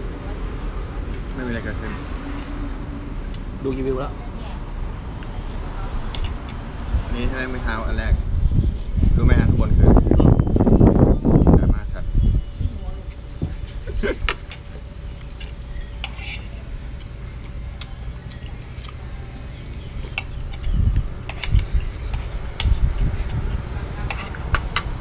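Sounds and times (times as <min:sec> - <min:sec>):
cutlery clinking on plates: 0:24.0 - 0:25.0.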